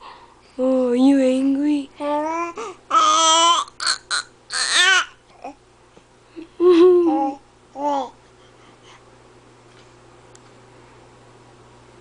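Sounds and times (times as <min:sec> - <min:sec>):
baby shouting and squealing: 0:02.9 - 0:05.2.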